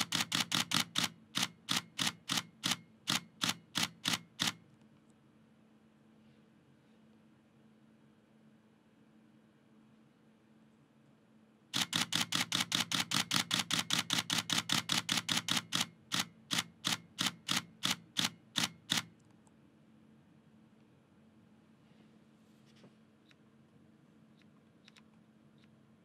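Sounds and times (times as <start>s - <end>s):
camera shutter burst: 0.0s - 4.6s, 11.8s - 19.1s.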